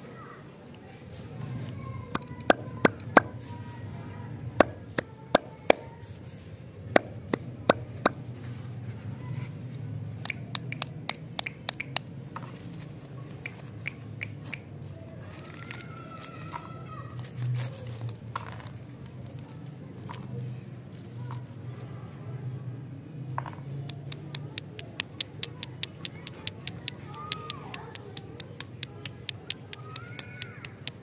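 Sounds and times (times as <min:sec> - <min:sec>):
fingers tapping wrapped lollipops: 0:02.1 - 0:03.5, 0:04.6 - 0:06.0, 0:06.9 - 0:08.2, 0:10.2 - 0:12.6, 0:23.8 - 0:31.0
plastic candy wrapper crackling: 0:15.2 - 0:20.6.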